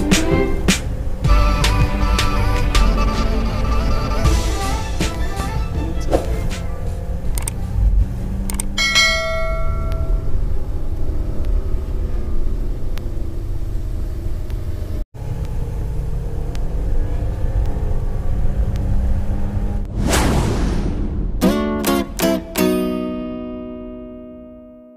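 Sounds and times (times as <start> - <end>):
road and tyre noise in car: 0.0 - 19.9
bell-like ding: 8.8 - 10.4
light ticks: 16.4 - 16.7, 17.6 - 17.8, 18.6 - 19.0.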